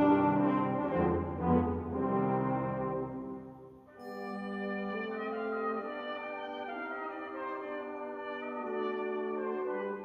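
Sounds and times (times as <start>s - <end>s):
brass band playing low chords: 0.0s - 3.6s.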